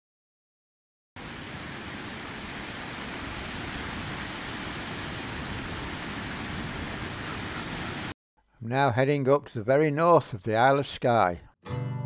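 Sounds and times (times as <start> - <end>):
water rushing over rocks: 1.2 - 8.1.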